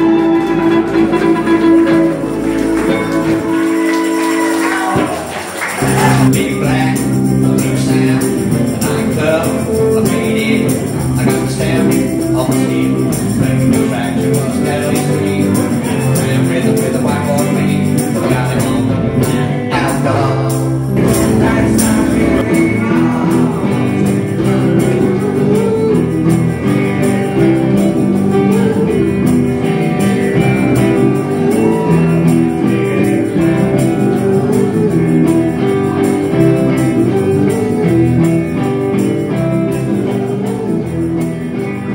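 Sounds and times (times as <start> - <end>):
live blues band playing: 0.0 - 41.9
tambourine: 1.5 - 41.9.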